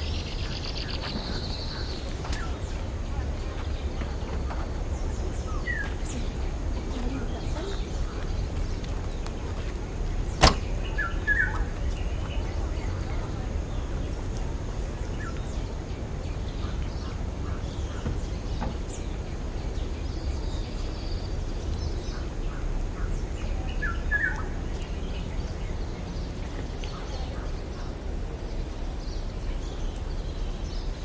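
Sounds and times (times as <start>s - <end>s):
steady low rumble: 0.0s - 31.0s
bird chirps: 10.3s - 14.3s.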